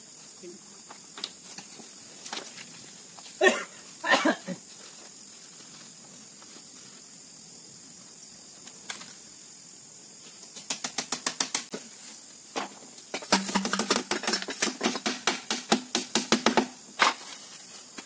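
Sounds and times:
insects buzzing: 0.0 - 18.0
knocks and rattles of bamboo slats: 12.5 - 17.3.

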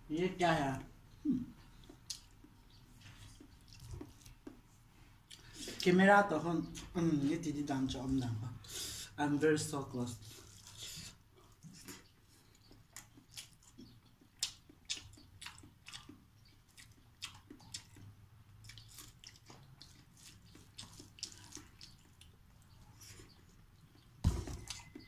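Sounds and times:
mouth smacking and chewing: 1.3 - 6.0, 10.4 - 25.0
fingers squishing wet food in bowl: 11.6 - 25.0.

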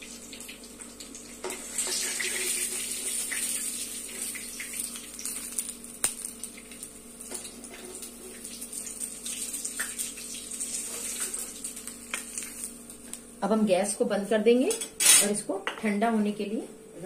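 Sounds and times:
hot oil sizzling: 0.0 - 13.4
oil crackles: 2.0 - 13.3.

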